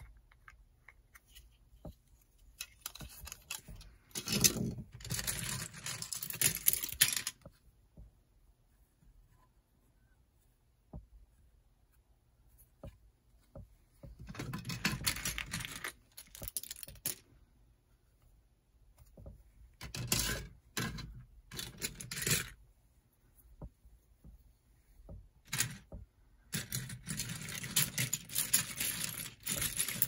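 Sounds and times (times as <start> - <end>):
plastic bricks clicking and knocking: 2.6 - 7.5, 14.2 - 17.3, 25.5 - 30.0.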